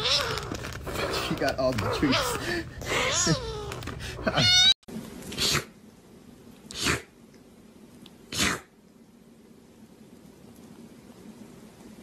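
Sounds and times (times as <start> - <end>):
kitten sneezing: 5.4 - 5.7, 6.7 - 7.1, 8.3 - 8.7.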